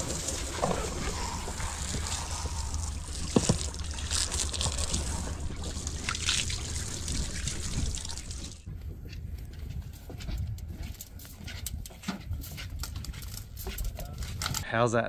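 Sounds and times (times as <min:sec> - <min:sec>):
water splashing on boat deck: 0:00.0 - 0:08.6.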